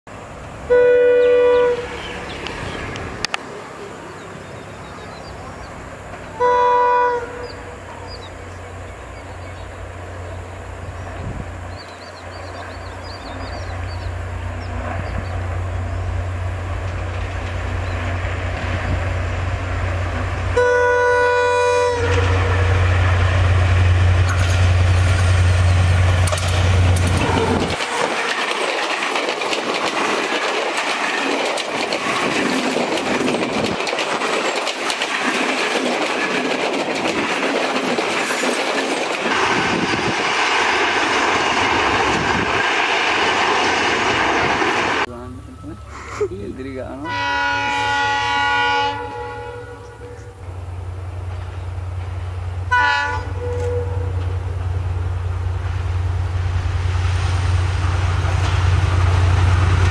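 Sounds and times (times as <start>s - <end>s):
locomotive horn blasts: 0.7s - 2.0s, 6.3s - 7.8s, 20.5s - 22.8s, 47.0s - 50.4s, 52.7s - 54.4s
train wheel clatter: 21.8s - 45.1s, 49.9s - 59.9s
diesel engine drone: 45.0s - 47.1s.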